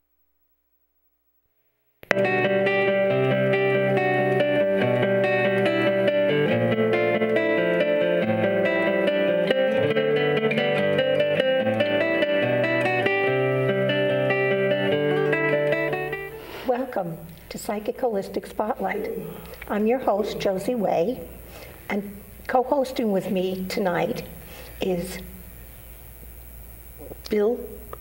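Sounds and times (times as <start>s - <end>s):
instrumental music with plucked guitar: 2.0s - 16.5s.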